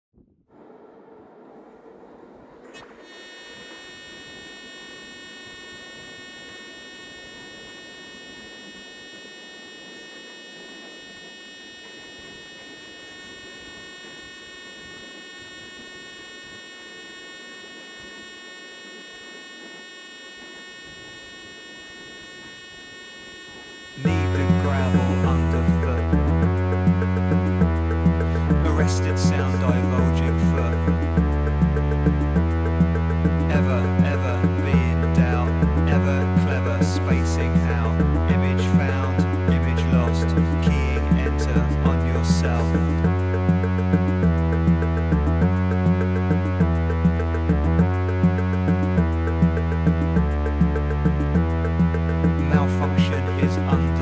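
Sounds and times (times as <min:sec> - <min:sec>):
synthesizer drone: 0:00.6 - 0:54.0
drum machine and synthesizer: 0:24.0 - 0:54.0.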